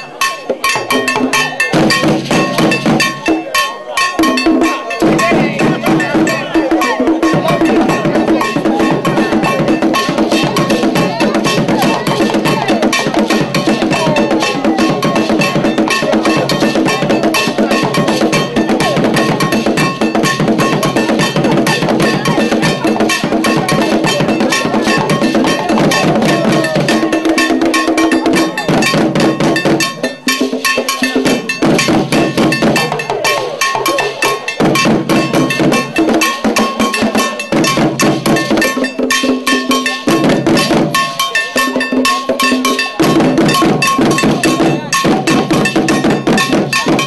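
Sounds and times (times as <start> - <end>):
drums playing fast rhythm: 0.0 - 47.0
ringing iron bell: 0.0 - 47.0.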